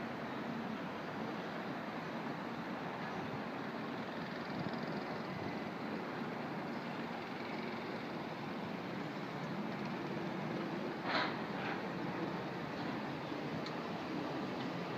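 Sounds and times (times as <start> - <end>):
distant city traffic hum: 0.0 - 14.9.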